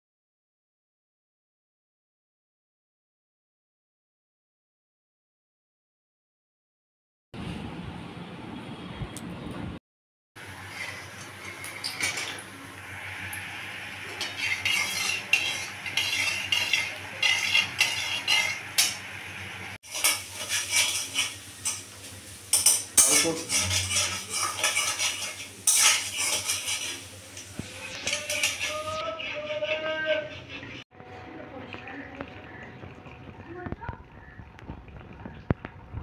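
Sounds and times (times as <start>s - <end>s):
onions sizzling in oil: 10.4s - 29.6s
spoon scraping metal pan: 10.6s - 12.4s, 14.0s - 19.1s, 19.8s - 21.9s, 22.5s - 30.8s.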